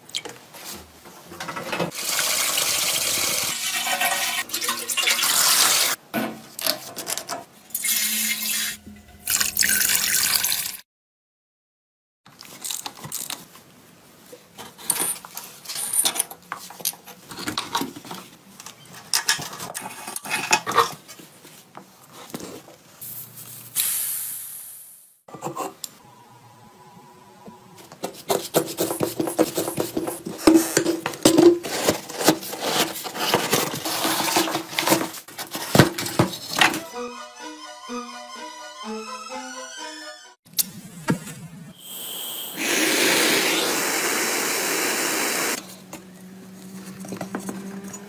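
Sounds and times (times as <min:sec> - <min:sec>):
air hissing from tyre: 0:23.7 - 0:25.2, 0:41.8 - 0:45.6.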